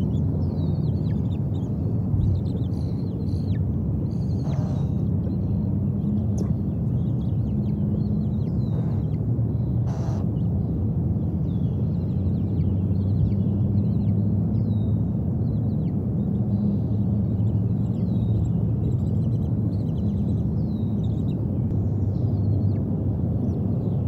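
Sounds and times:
bird chirps: 0.0 - 10.5
low rumbling hum: 0.0 - 24.0.

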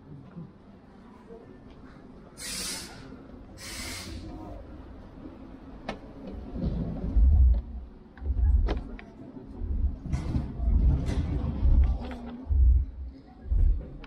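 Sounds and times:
deep bass thumps from subwoofers: 7.1 - 8.9, 9.6 - 14.0.

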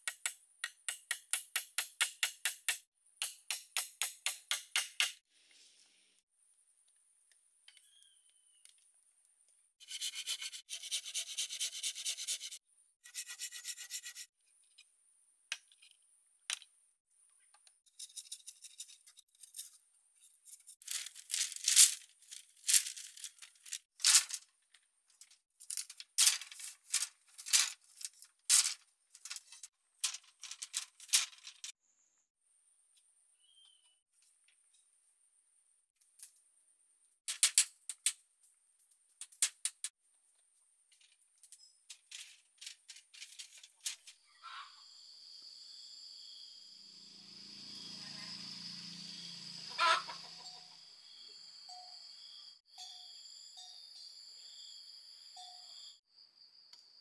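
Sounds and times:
rubbing and scraping strokes: 9.8 - 14.4.

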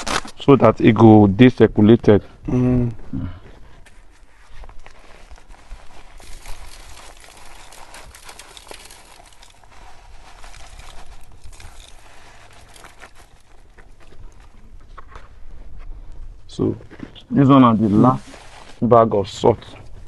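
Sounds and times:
salt grains pattering: 5.9 - 13.5.

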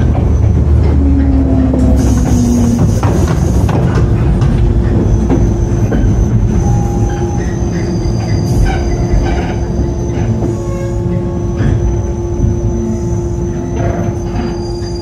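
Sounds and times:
rail-joint clicks: 0.0 - 15.0
train rumbling on rails: 0.0 - 15.0
high wheel squeal: 4.9 - 15.0.

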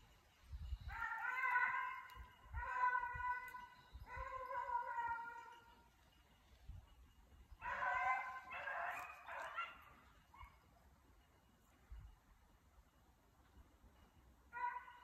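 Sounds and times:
hound baying and howling: 0.8 - 6.0, 7.5 - 10.7, 14.5 - 15.0.

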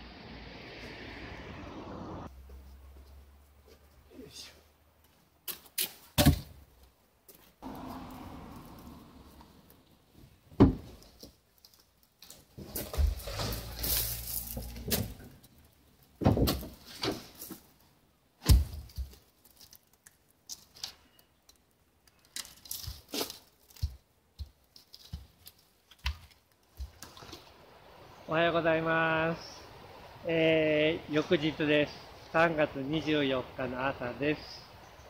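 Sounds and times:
logs thudding: 5.4 - 6.7, 7.6 - 11.4, 12.2 - 15.6, 16.2 - 17.7, 18.4 - 19.8, 22.3 - 27.5
scraping and rustling: 8.6 - 17.8.

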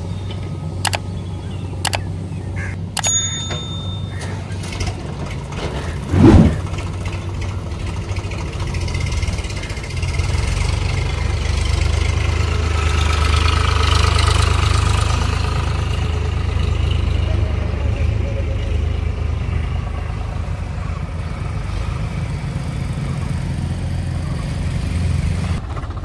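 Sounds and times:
tractor diesel engine running: 0.0 - 26.0
loud thump: 6.1 - 6.7.

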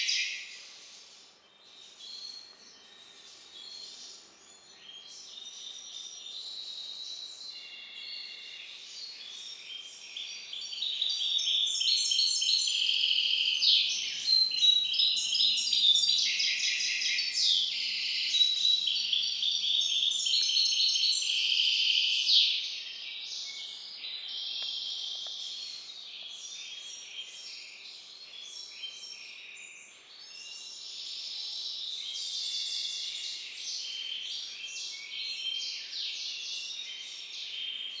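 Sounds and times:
bird singing trills: 0.0 - 38.0.

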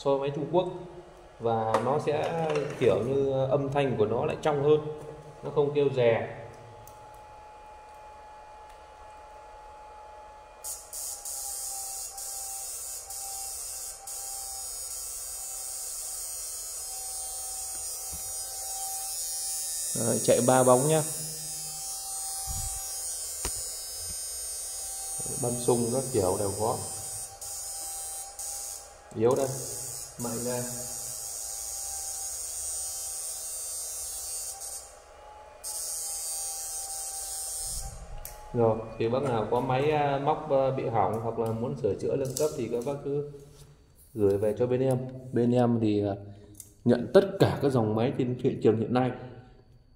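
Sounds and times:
high-pitched electrical whine: 0.0 - 46.1
low hum: 20.6 - 22.9.

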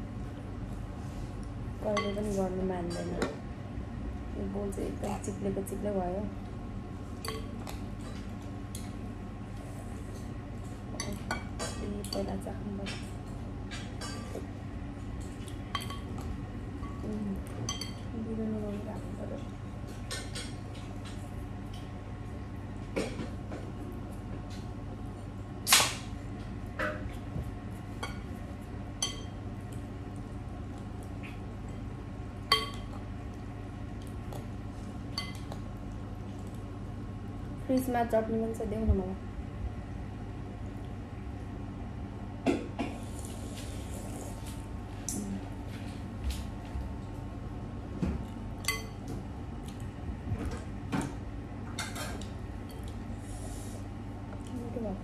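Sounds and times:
steady low hum: 0.0 - 55.0
fork clinking against glass bowl: 29.0 - 29.4, 48.6 - 49.0.

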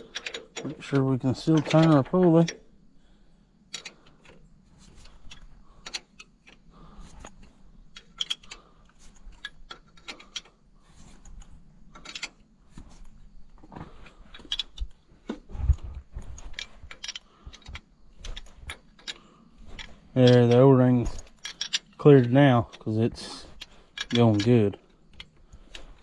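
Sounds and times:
wrench clicking on bolts: 0.0 - 2.6, 3.7 - 4.4, 5.0 - 10.6, 11.3 - 12.4, 16.4 - 26.0.

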